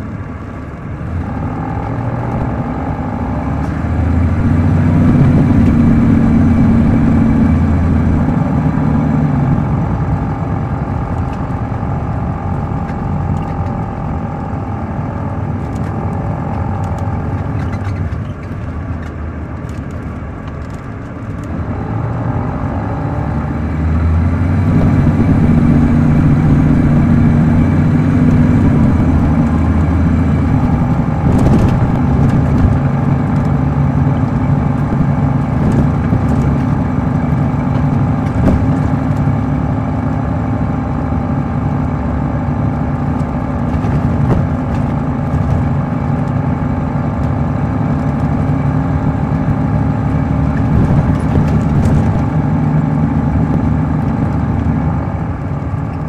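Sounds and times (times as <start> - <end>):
diesel engine running: 0.0 - 56.0
high transmission whine: 0.0 - 56.0.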